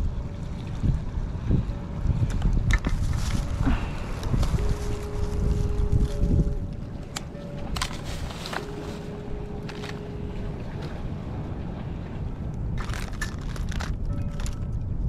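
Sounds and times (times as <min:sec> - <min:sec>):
sea: 0:00.0 - 0:15.0
wind rumble on microphone: 0:00.0 - 0:15.0
plastic bags crinkling: 0:07.7 - 0:10.1, 0:12.8 - 0:14.6.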